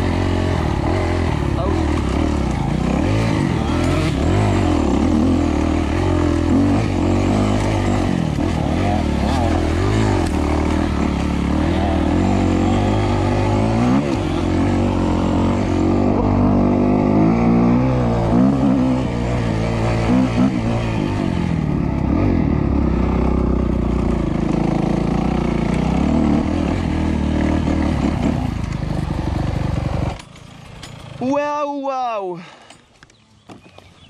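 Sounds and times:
motorcycle engine revving: 0:00.0 - 0:31.4.

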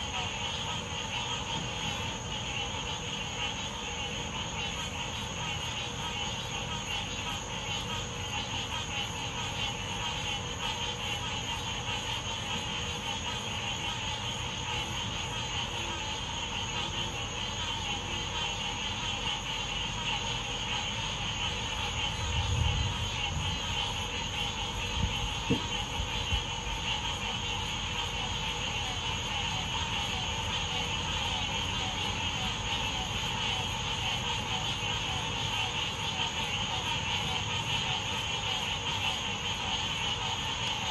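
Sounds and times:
low distant rumbles: 0:22.0 - 0:26.6
short thump: 0:25.4 - 0:25.7.

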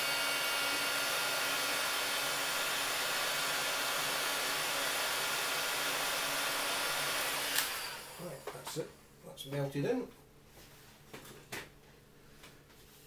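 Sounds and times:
hot air gun blowing: 0:00.0 - 0:08.3.

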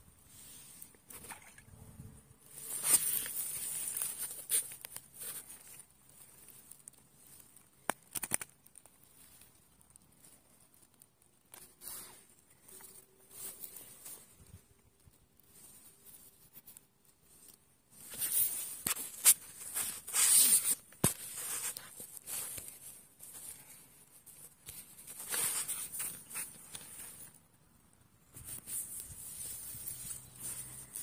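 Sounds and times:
grass and reeds rustling: 0:00.2 - 0:27.4, 0:28.2 - 0:31.0
sharp clicks: 0:07.9 - 0:08.6.

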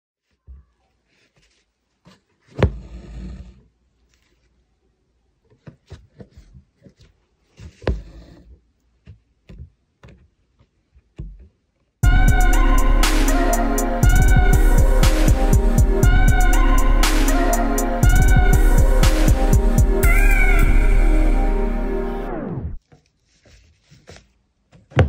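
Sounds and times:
fabric rustling: 0:00.2 - 0:03.0.

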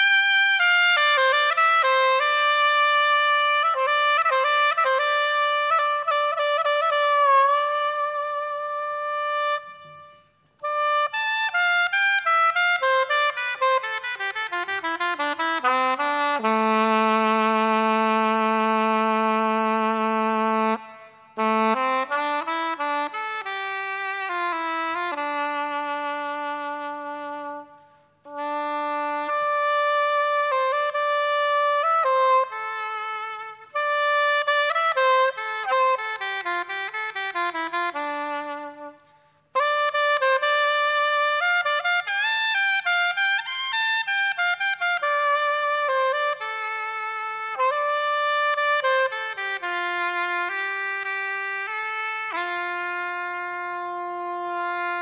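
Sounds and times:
wind instrument melody: 0:00.0 - 0:55.0.

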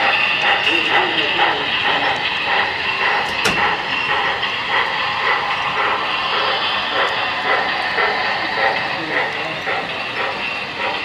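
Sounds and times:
model train running: 0:00.0 - 0:11.0
sharp click: 0:03.2 - 0:03.8.

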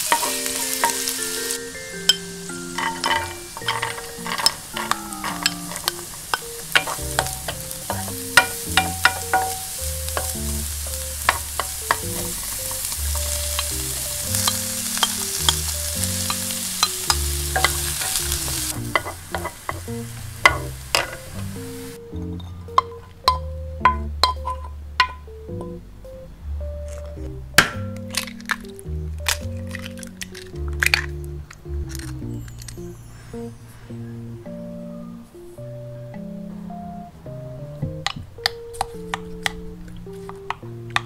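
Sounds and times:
wooden spoon scraping pan: 0:00.0 - 0:19.8
food sizzling in oil: 0:00.0 - 0:22.0.

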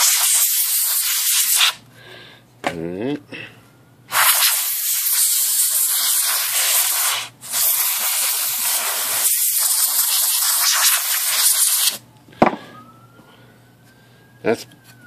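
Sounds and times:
pressurised spray hissing: 0:04.1 - 0:12.0.

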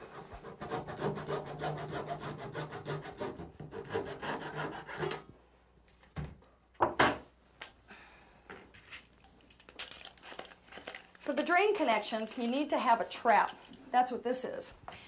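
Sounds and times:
hand tool rasping plastic pipe: 0:00.0 - 0:05.2.

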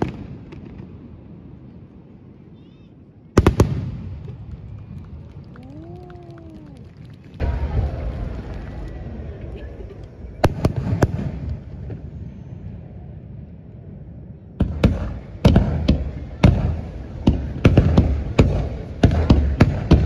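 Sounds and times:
low fireworks rumble: 0:00.0 - 0:20.0
fireworks bangs: 0:03.4 - 0:12.3, 0:14.6 - 0:20.0.

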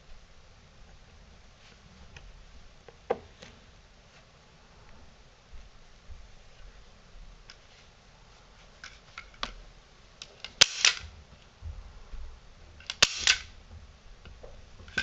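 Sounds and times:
staple gun firing: 0:10.4 - 0:11.1, 0:12.9 - 0:13.5.

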